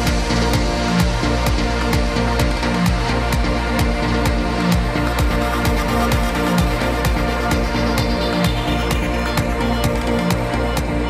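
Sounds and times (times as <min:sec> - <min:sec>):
four-on-the-floor kick drum: 0:00.0 - 0:11.0.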